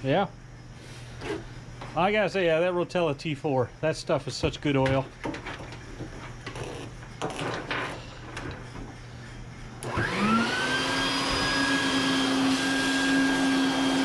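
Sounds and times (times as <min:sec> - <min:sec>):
handling knocks and clicks: 0:04.4 - 0:09.0
shop vacuum motor whine: 0:09.8 - 0:14.0.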